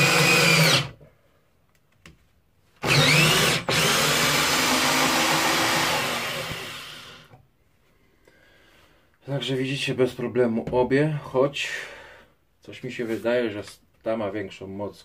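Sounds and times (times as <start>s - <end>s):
drill driving screw into wood: 0.0s - 1.0s, 2.8s - 7.4s.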